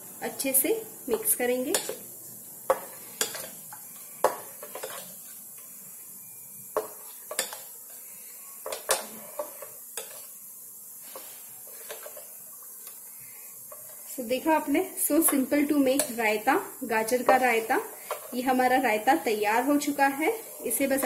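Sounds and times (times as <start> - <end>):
spoon clinking against steel bowl: 6.8 - 7.6.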